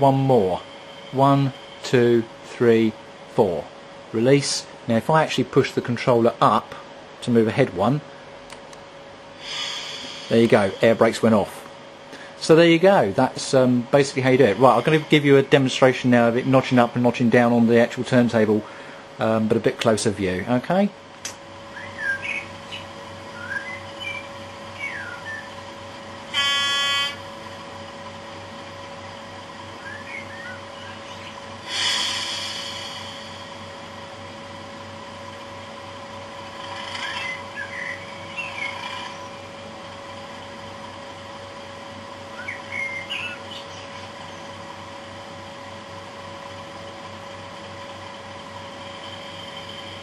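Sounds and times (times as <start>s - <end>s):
diesel engine sound from small speaker: 0.0s - 8.3s, 9.4s - 50.0s
computer servers humming: 0.0s - 50.0s
air brakes hiss: 9.4s - 10.9s, 31.6s - 33.6s
chirping whistle: 21.7s - 25.6s, 26.3s - 27.3s, 29.7s - 33.6s, 36.9s - 39.5s, 42.3s - 44.4s
short horn tone: 26.3s - 27.3s
diesel engine idling: 30.7s - 36.8s.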